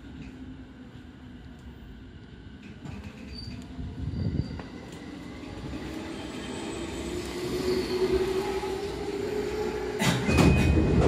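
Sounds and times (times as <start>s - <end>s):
passing train hum: 0.0s - 11.0s
train running rumble: 2.5s - 11.0s.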